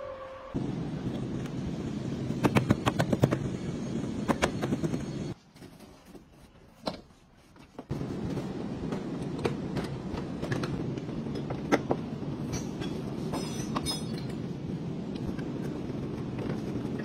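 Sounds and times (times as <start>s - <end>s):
background noise: 0.0s - 17.0s.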